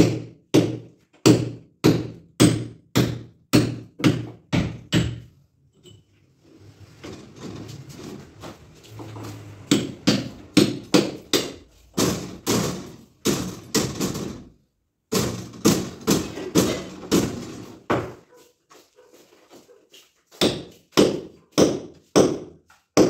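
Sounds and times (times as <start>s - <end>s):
hammer blows on masonry: 20.3s - 23.0s.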